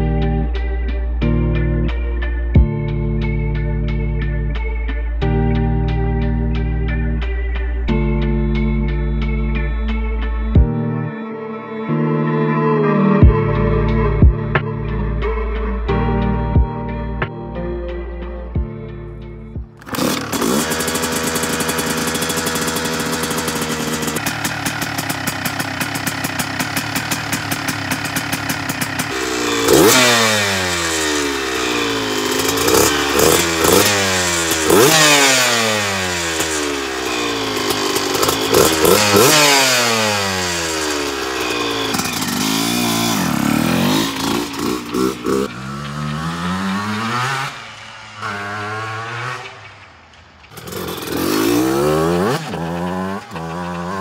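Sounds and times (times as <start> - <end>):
dirt bike engine revving: 19.8 - 54.0.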